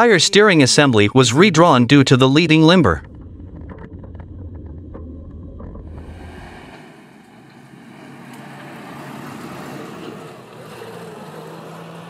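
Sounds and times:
low engine hum: 2.7s - 12.0s
car driving past: 5.9s - 12.0s.

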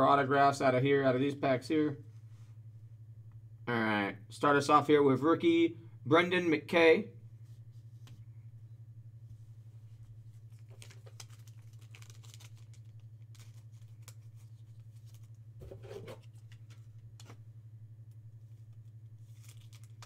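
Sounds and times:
low electrical hum: 0.0s - 20.0s
trading cards clicking and rustling: 10.5s - 17.4s, 19.2s - 20.0s.

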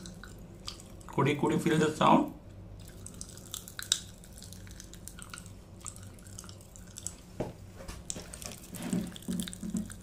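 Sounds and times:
popping candy crackling in mouth: 2.8s - 7.2s, 8.1s - 10.0s.

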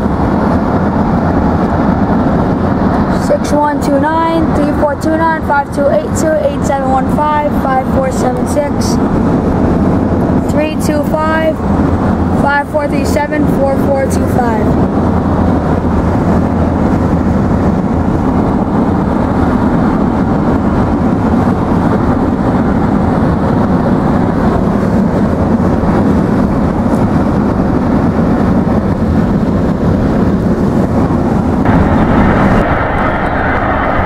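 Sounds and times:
car road and wind noise: 0.0s - 34.0s.

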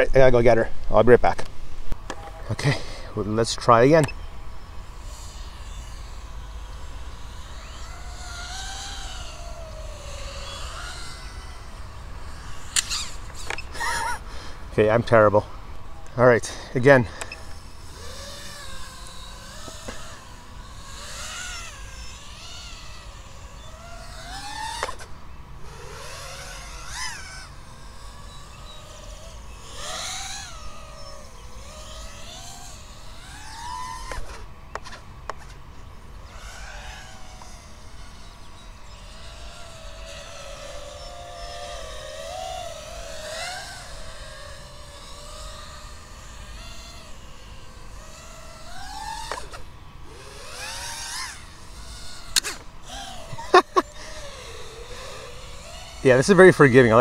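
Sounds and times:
drone motors whining: 0.0s - 57.0s.

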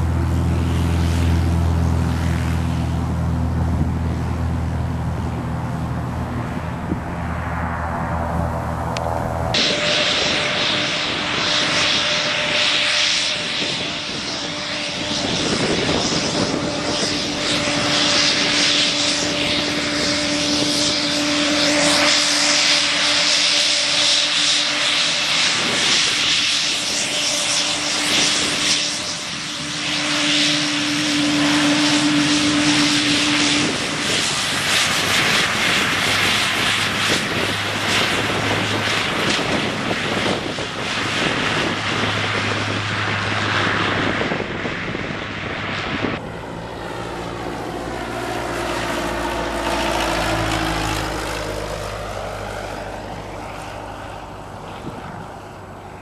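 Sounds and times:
small plane flying past: 0.0s - 56.0s
turboprop engines whining: 0.0s - 56.0s.

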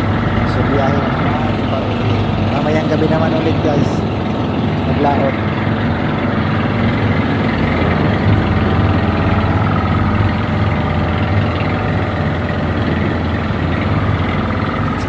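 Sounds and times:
boat engine droning: 0.0s - 15.0s
sea wash: 0.0s - 15.0s.

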